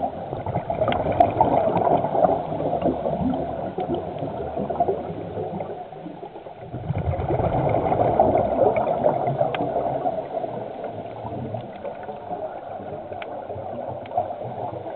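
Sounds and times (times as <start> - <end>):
steady underwater hiss: 0.0 - 14.9
underwater exhaust bubbles: 0.0 - 14.9
faint clicks: 0.4 - 4.4, 9.2 - 14.9.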